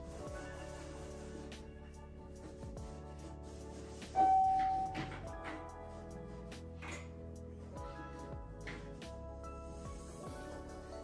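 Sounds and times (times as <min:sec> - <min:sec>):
electronic keyboard notes: 0:04.2 - 0:05.7.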